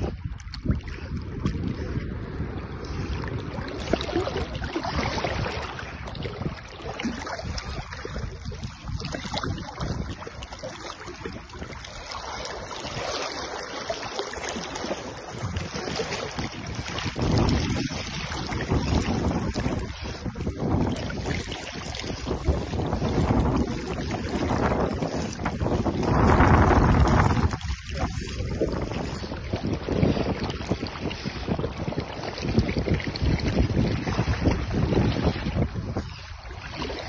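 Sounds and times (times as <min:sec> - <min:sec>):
water sloshing and splashing: 0:00.0 - 0:37.0
wind buffeting microphone: 0:00.0 - 0:37.0.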